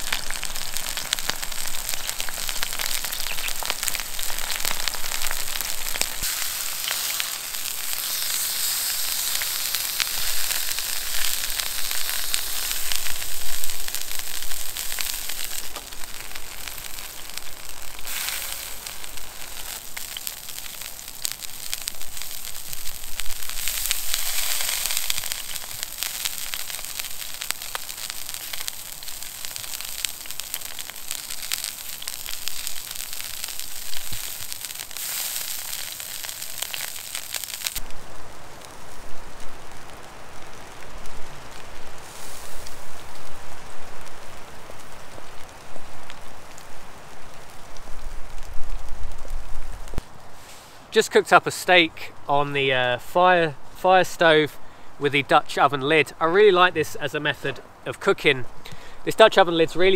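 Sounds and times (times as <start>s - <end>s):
steak sizzling: 0.0s - 54.4s
wood fire crackling: 0.0s - 59.9s.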